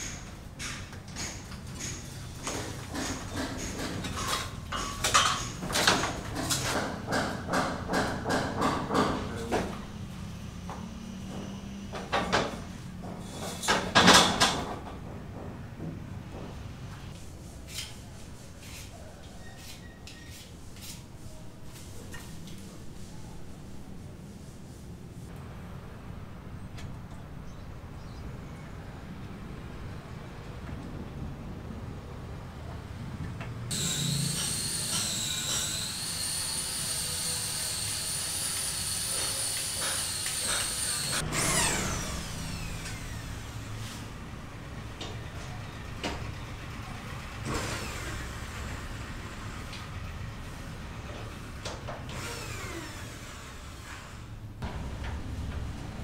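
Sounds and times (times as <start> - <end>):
power tool whining: 33.7 - 43.7, 52.1 - 54.3.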